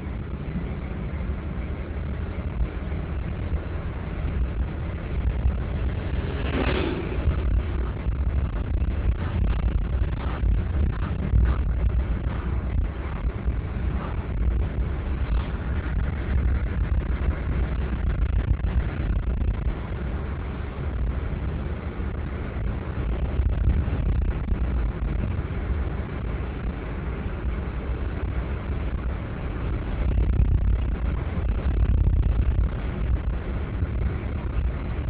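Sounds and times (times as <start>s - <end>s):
car driving cabin rumble: 0.0s - 35.0s.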